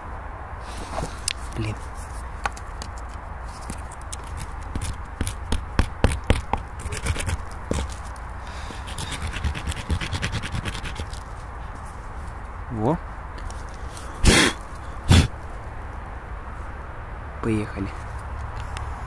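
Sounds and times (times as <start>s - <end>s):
handling noises scraping and rustling: 0.6s - 12.6s.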